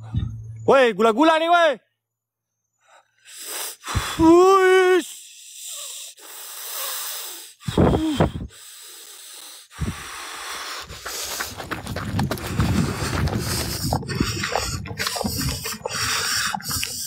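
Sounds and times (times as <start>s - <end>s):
breathy exhales: 5.2s - 11.6s, 12.4s - 17.0s.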